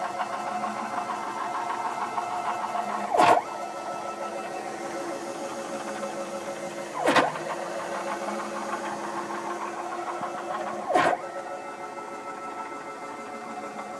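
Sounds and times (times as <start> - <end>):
stepper motors whining: 0.0 - 13.9.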